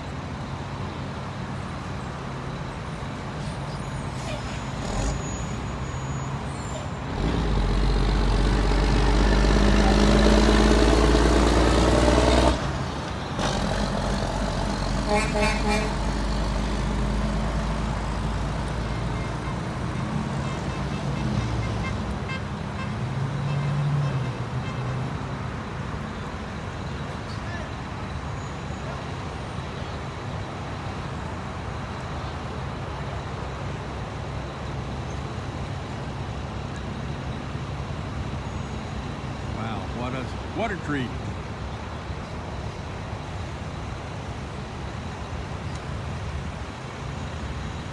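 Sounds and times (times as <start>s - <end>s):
heavy vehicle engine rumbling: 0.0s - 47.9s
traffic noise: 0.0s - 47.9s
vehicle horn toots: 15.0s - 16.0s.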